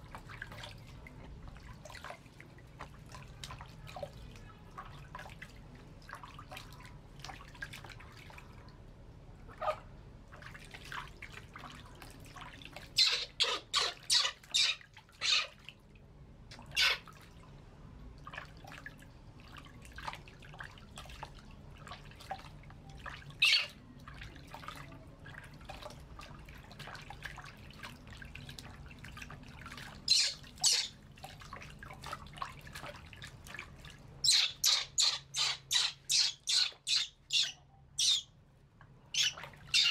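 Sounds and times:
water trickling and splashing: 0.0s - 39.9s
shrill monkey squeals: 13.0s - 15.5s, 16.8s - 17.0s, 23.4s - 23.7s, 30.1s - 30.9s, 34.2s - 38.2s, 39.2s - 39.9s.

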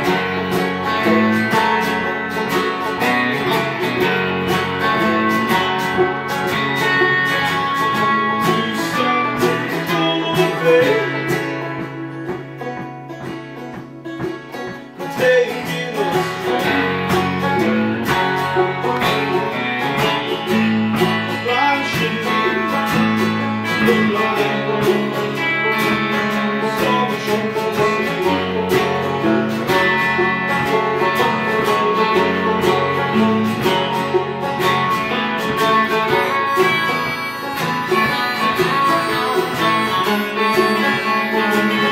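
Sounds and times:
bluegrass band playing: 0.0s - 41.9s
man singing: 8.0s - 11.9s, 15.0s - 18.0s, 21.3s - 30.0s, 30.6s - 34.0s, 35.6s - 41.9s.

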